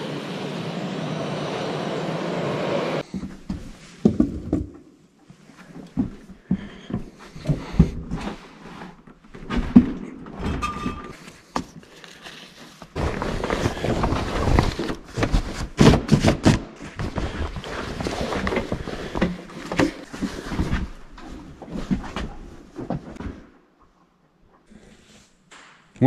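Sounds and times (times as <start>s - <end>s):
fabric cover rustling: 11.8s - 23.1s.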